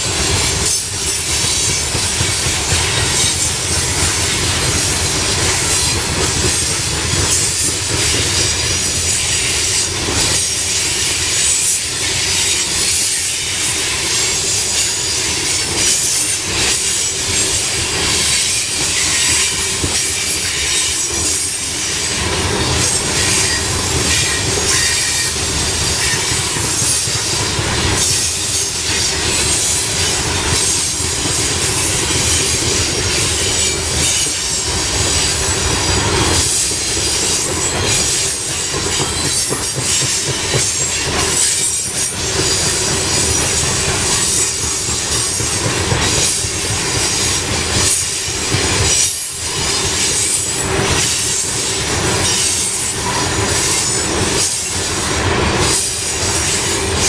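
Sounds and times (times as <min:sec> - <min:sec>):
freight train rolling past: 0:00.0 - 0:57.0
high-pitched wheel squeal: 0:08.1 - 0:27.3.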